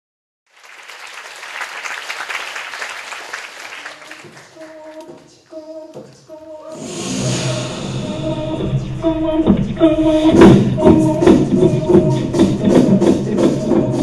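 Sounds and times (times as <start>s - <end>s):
audience applause: 0.5s - 5.0s
a cappella group singing chords: 4.6s - 14.0s.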